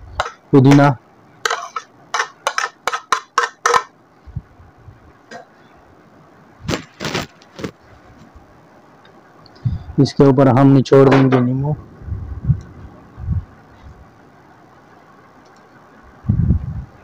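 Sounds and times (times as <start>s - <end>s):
plate tapping and scraping: 0.2s - 3.9s.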